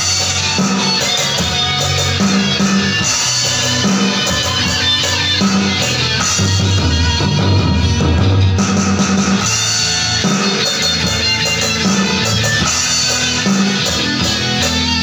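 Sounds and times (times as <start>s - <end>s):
electronic drums playing: 0.0s - 15.0s
rock backing track: 0.0s - 15.0s.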